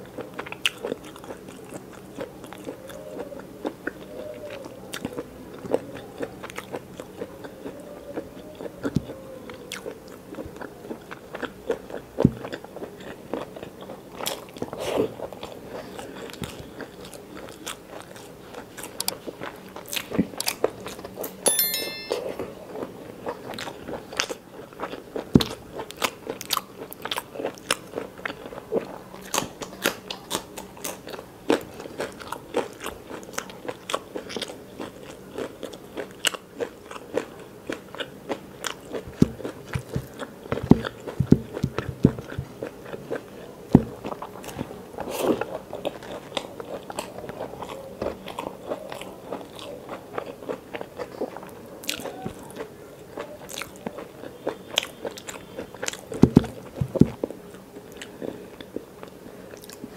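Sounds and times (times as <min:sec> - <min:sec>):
wet chewing and mouth clicks: 0:23.6 - 0:57.3.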